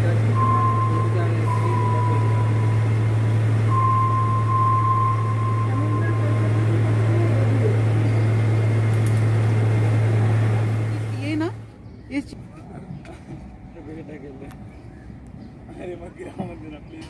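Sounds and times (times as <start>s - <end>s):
low mechanical hum: 0.0s - 17.0s
thin high tone: 0.2s - 8.4s.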